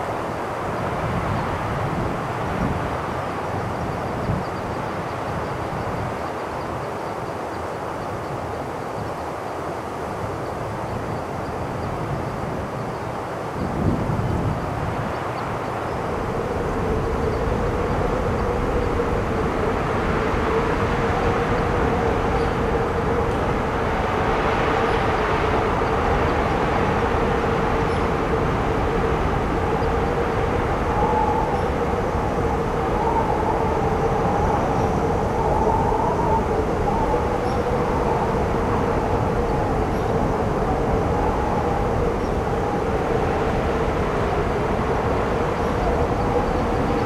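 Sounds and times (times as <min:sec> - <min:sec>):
storm wind blowing hard: 0:00.0 - 0:47.0
steady whistling tone: 0:24.8 - 0:43.8.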